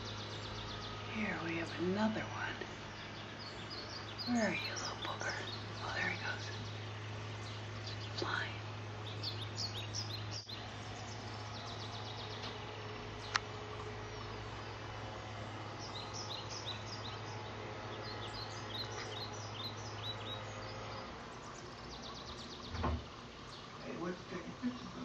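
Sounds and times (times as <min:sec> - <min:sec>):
songbirds chirping: 0:00.0 - 0:25.0
steady low hum: 0:00.0 - 0:25.0
low thump: 0:22.7 - 0:23.1.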